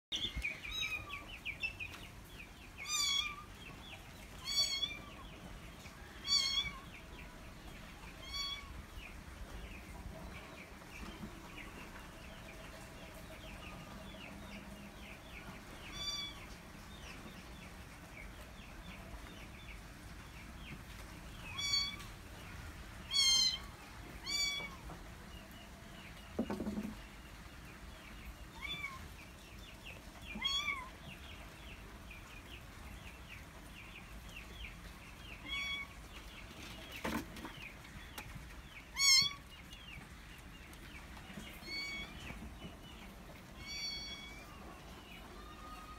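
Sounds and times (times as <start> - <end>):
kitten meowing: 4.4 - 5.0, 43.6 - 44.5
faint high chirping: 41.4 - 42.4, 43.6 - 45.9.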